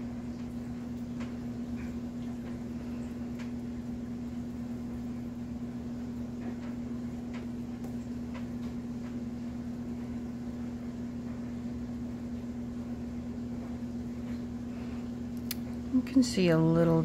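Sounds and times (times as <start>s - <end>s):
low electrical hum: 0.0s - 17.0s
faint light ticks: 15.4s - 15.6s.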